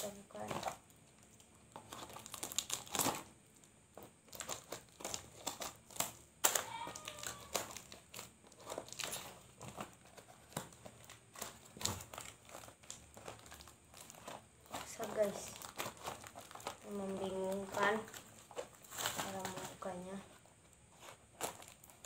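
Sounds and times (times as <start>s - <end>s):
paper crinkling and rustling: 0.0s - 22.0s.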